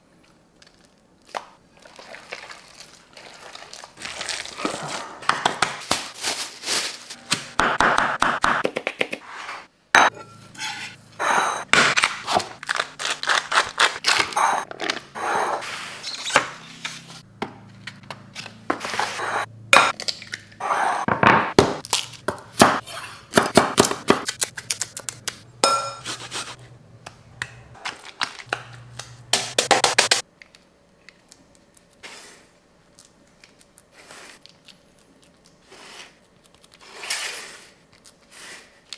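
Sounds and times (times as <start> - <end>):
glass bowls clinking: 10.0 - 11.7, 25.6 - 26.0.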